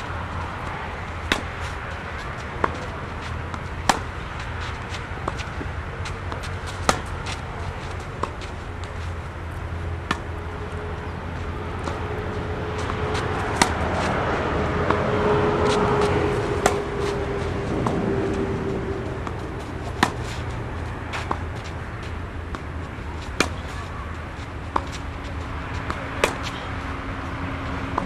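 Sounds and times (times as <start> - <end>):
tennis balls struck with racquets: 0.0 - 28.0
vehicle passing hum: 0.0 - 28.0.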